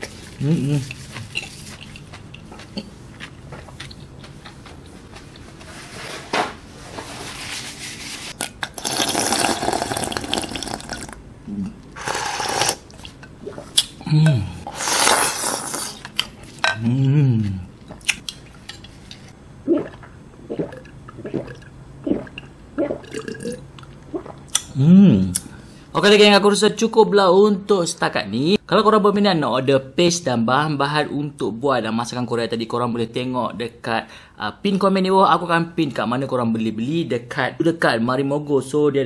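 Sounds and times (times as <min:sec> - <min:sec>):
person gulping a drink: 0:08.4 - 0:16.1, 0:19.6 - 0:25.4
person slurping broth: 0:08.7 - 0:12.9, 0:13.5 - 0:16.1, 0:19.7 - 0:23.6
person sighing: 0:14.0 - 0:14.7, 0:16.8 - 0:17.7, 0:24.8 - 0:25.3.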